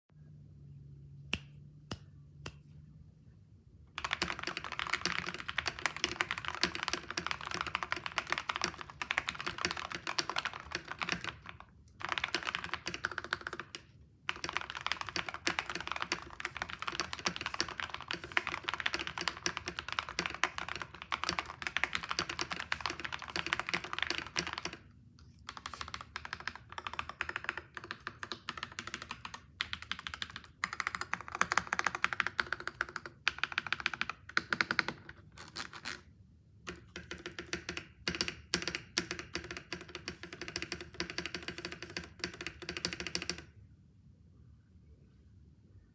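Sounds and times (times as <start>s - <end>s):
mechanical keyboard typing: 4.0s - 24.9s, 25.5s - 36.0s, 36.7s - 43.6s.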